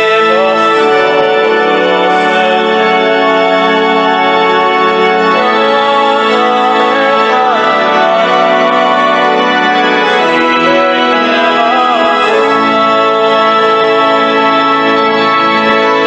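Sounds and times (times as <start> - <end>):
electronic organ chords: 0.0 - 16.0.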